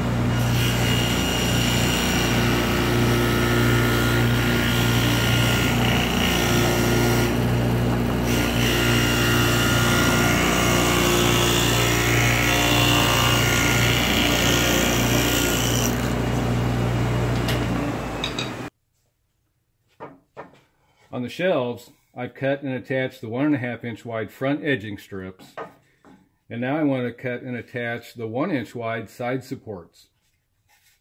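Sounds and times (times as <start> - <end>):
table saw cutting wood: 0.0 - 18.7.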